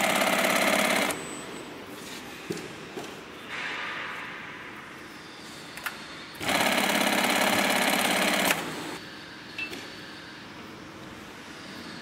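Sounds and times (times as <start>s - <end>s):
sewing machine stitching chatter: 0.0s - 1.2s, 6.4s - 9.0s
low steady machine background: 0.0s - 12.0s.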